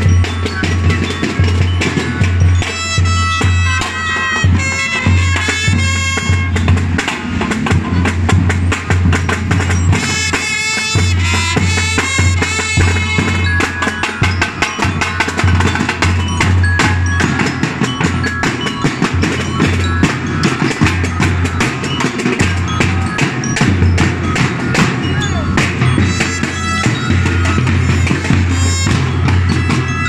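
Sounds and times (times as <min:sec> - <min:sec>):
bell lyres ringing: 0:00.0 - 0:30.0
bass drum: 0:11.0 - 0:30.0.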